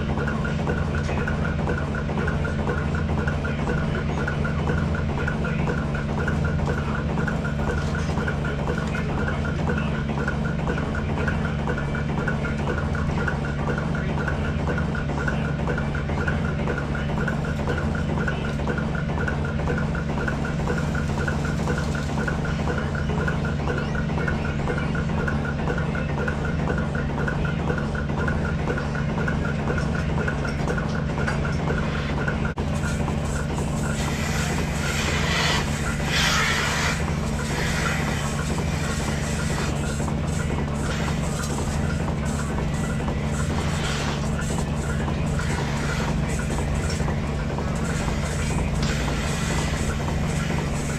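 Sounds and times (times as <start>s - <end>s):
milking pulsators pulsing: 0.0s - 50.9s
vacuum pump drone: 0.0s - 50.9s.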